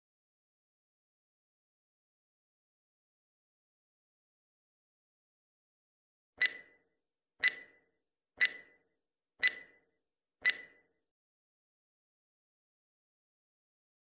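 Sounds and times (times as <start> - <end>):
countdown timer ticks: 6.4 - 6.8, 7.4 - 8.8, 9.4 - 9.8, 10.4 - 10.8.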